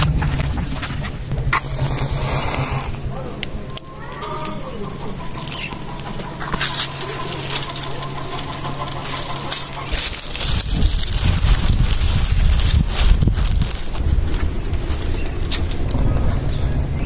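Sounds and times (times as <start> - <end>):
low rumble: 0.0 - 17.0
palm fronds crackling in fire: 0.0 - 17.0.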